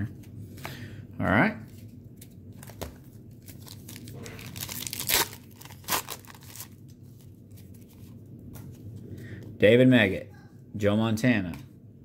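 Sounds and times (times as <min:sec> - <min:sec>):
wrapper crinkling and ripping: 0:03.3 - 0:07.0.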